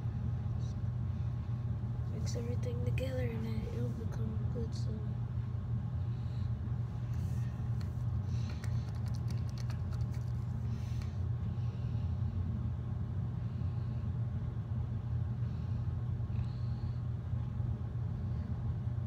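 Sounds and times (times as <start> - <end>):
steady low hum: 0.0 - 19.0
stick stirring slime in cup: 8.4 - 10.6.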